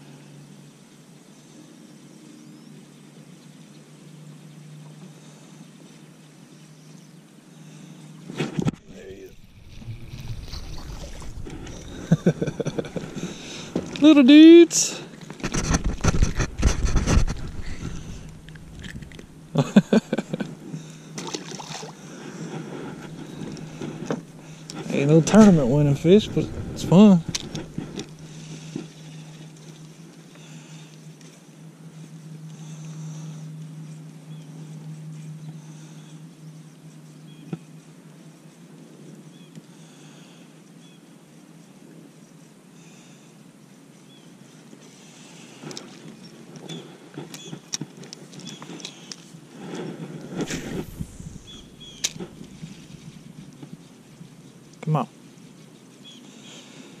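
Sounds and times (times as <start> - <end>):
faint open-water background: 0.0 - 57.0
fish splashing into water: 9.4 - 12.2, 21.2 - 22.0
electric trolling motor humming: 50.2 - 54.6.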